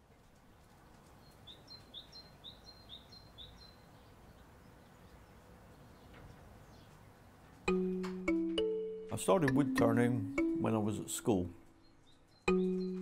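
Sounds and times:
songbird singing high notes: 9.4 - 13.0.

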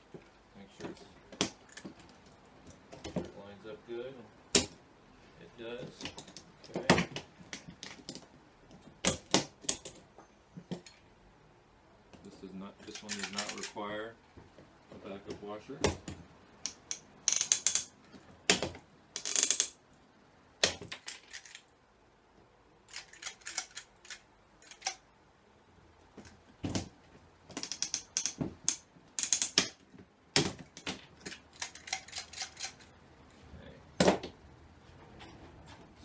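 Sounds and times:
ratchet-like rasps: 16.6 - 17.9, 22.9 - 25.0, 27.6 - 29.8, 31.3 - 32.9.

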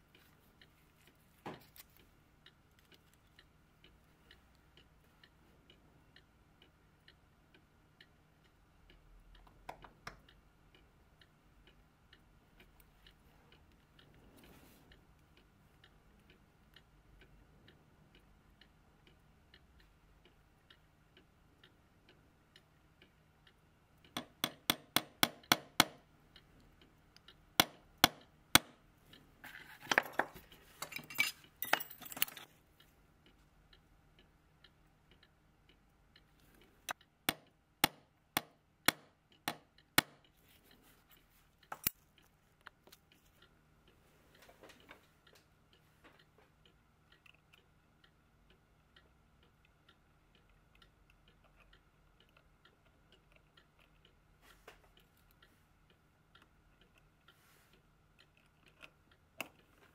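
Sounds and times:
metallic clicks of clock wheels: 0.0 - 59.9
rustling and clinking: 29.4 - 32.6.

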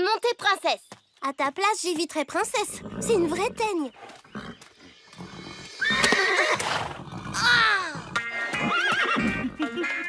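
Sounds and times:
pony neighing: 2.7 - 3.7, 4.3 - 9.6.

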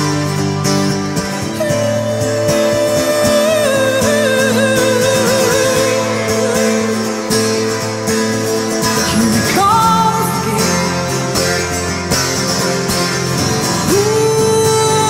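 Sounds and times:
electric guitar: 0.0 - 15.0
live pop-rock band: 0.0 - 15.0
woman singing: 1.3 - 7.6, 9.0 - 11.6, 13.8 - 15.0.

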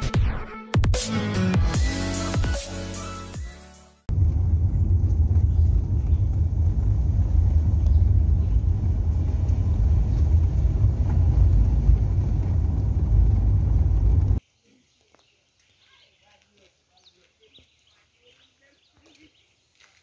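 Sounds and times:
electronic music: 0.0 - 4.0
car rumbling on dirt track: 4.1 - 14.4.

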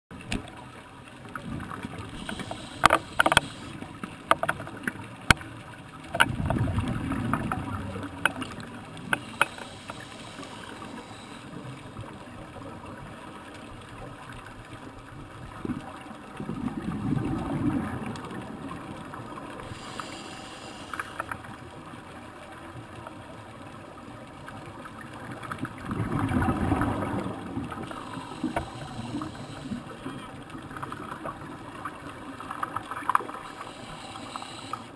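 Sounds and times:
underwater regulator bubbles: 1.2 - 5.4, 6.1 - 13.0, 15.5 - 21.5, 25.5 - 34.9
watery hiss: 2.0 - 3.8, 9.1 - 11.8, 19.6 - 21.5, 26.4 - 30.2, 33.3 - 34.9
sharp clicks: 2.2 - 4.6.

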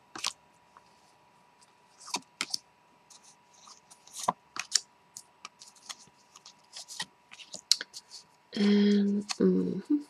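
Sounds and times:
faint steady hum: 0.0 - 10.0
cards snapping and sliding: 2.0 - 2.6, 3.6 - 8.1.

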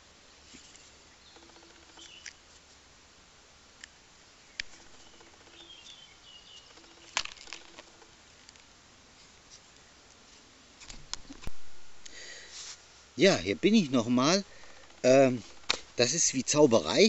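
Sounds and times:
faint bird chirps: 0.6 - 2.4, 4.4 - 7.7
objects clicking on wooden bench: 4.6 - 8.6.

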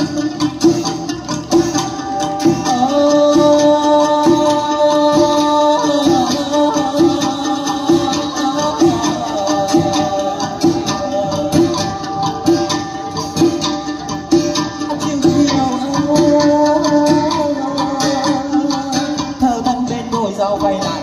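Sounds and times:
drum beat: 0.0 - 21.0
plucked strings: 0.0 - 21.0.

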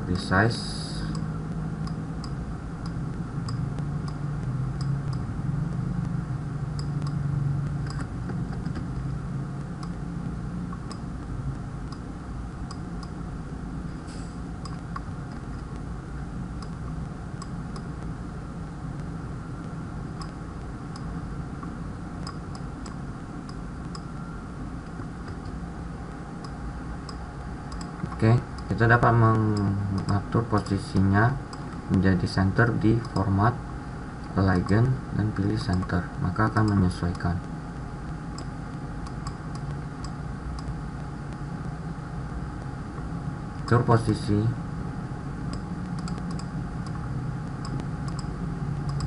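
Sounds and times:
low hum: 0.0 - 49.0
computer mouse clicks: 7.8 - 9.0, 20.2 - 21.1, 22.2 - 24.1, 26.4 - 28.7, 29.5 - 30.8, 35.4 - 35.9, 36.6 - 37.2, 38.3 - 40.8, 45.5 - 49.0.

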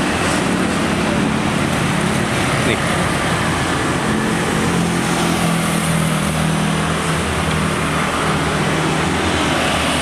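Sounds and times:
road traffic passing: 0.0 - 10.0
vehicle engine humming: 0.0 - 10.0.

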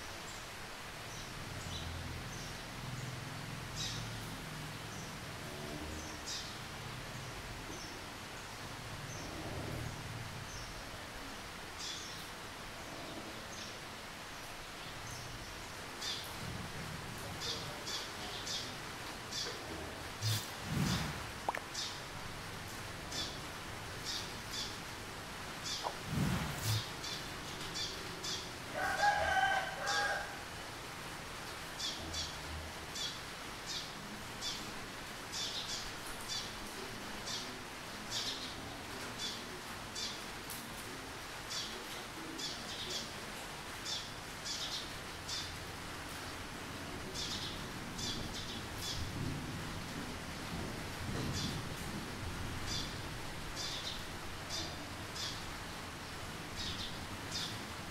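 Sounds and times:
steady background hiss: 0.0 - 57.9
sparrows chirping: 53.6 - 57.6.

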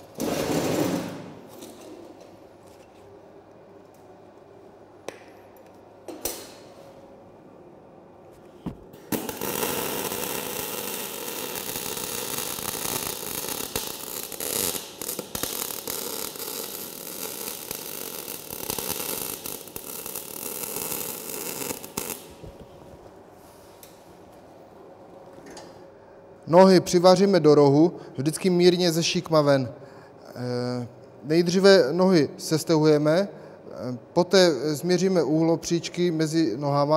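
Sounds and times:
welding arc crackling: 9.0 - 22.6.

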